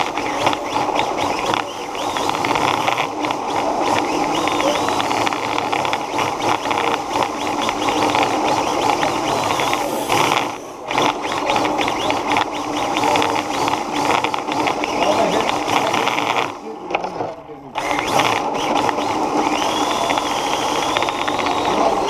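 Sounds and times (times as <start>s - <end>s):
toy car motor clattering and whining: 0.0s - 22.0s.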